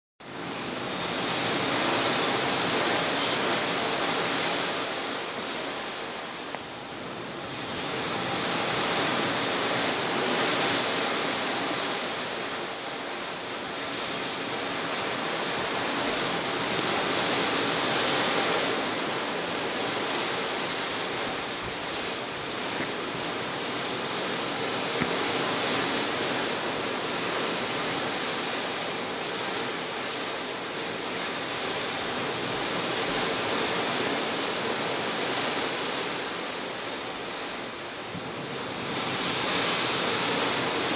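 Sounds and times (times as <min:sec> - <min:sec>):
water rushing past ship hull: 0:00.2 - 0:40.9.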